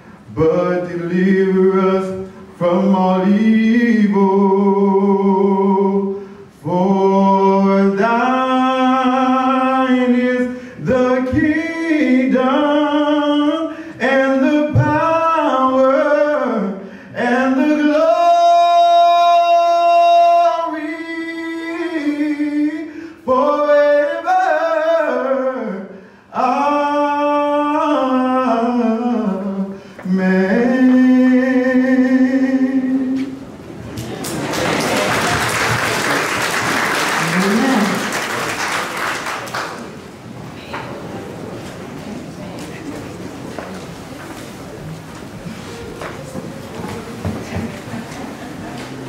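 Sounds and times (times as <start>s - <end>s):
person singing unaccompanied: 0.3s - 33.4s.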